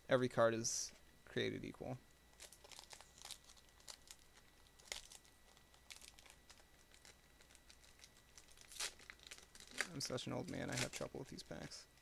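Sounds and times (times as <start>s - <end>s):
foil wrapper crinkling: 2.3s - 11.4s.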